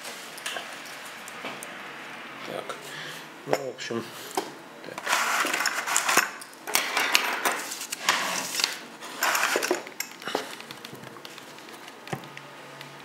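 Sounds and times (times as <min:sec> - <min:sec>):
objects rustling on a table: 0:04.2 - 0:12.4.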